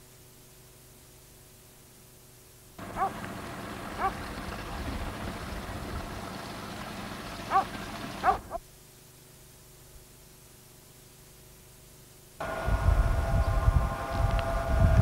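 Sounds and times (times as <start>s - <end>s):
animal yelping: 2.9s - 3.2s, 4.0s - 4.2s, 7.4s - 8.6s.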